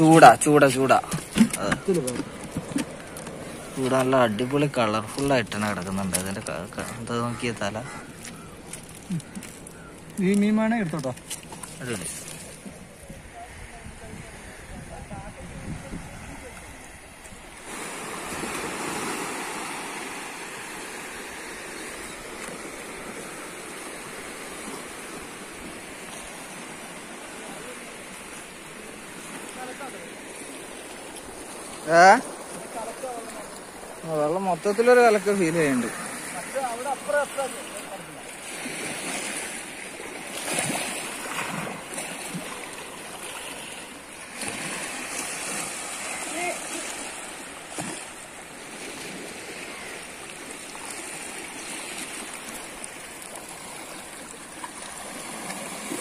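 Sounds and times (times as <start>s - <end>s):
surf breaking on rocks: 17.6s - 21.7s, 22.4s - 56.0s.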